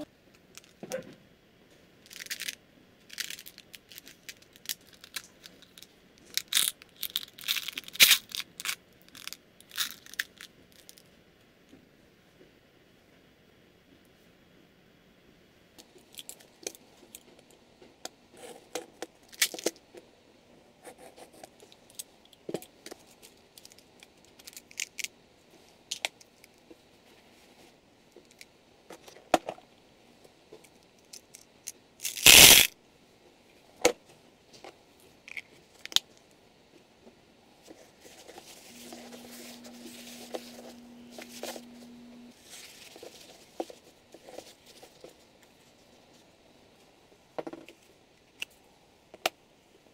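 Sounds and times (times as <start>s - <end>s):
low steady hum: 0.0s - 49.9s
loud brief tearing: 32.0s - 32.7s.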